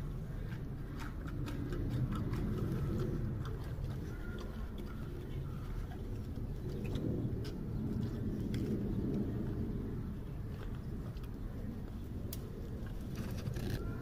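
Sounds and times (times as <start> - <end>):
low background rumble: 0.0 - 14.0
panda chewing bamboo: 0.1 - 7.5.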